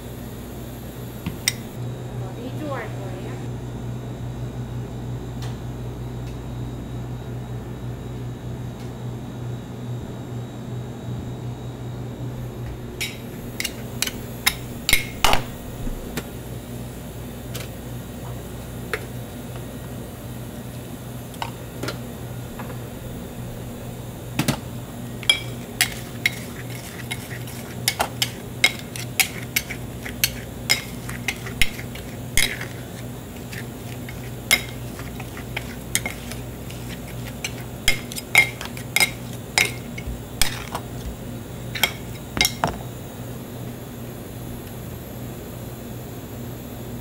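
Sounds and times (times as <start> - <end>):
steady low hum: 0.0 - 47.0
metal spatulas clinking on stone: 25.3 - 32.8, 33.5 - 40.7, 41.8 - 42.6.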